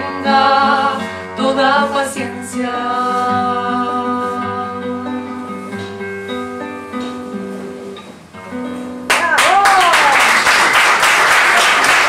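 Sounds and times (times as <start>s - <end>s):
classical guitar chords: 0.0s - 9.4s.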